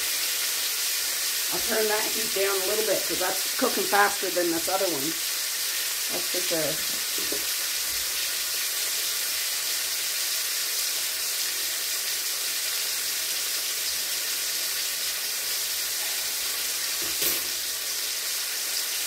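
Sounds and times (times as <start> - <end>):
meat sizzling in pans: 0.0 - 19.0.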